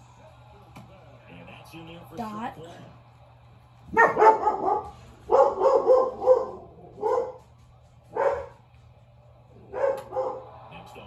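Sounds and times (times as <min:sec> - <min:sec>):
dog barking loudly: 0:03.9 - 0:07.4, 0:08.2 - 0:08.6.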